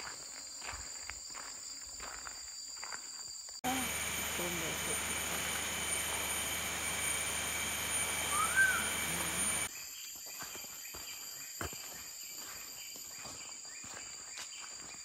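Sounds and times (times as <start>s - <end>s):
footsteps on dirt track: 0.0s - 8.2s, 10.1s - 15.0s
insects droning: 0.0s - 15.0s
bird whistle: 8.2s - 9.3s.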